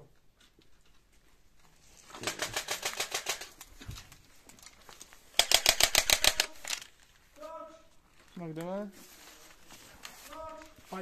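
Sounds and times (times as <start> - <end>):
footsteps through dry undergrowth: 6.9 - 11.0.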